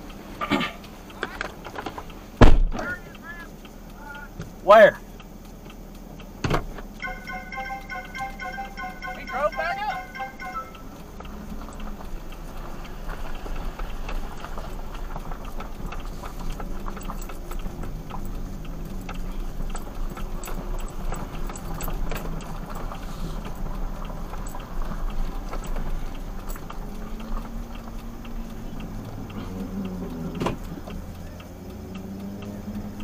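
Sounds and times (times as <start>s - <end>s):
vehicle engine rumbling: 0.0s - 33.0s
small rattling clicks: 11.0s - 33.0s.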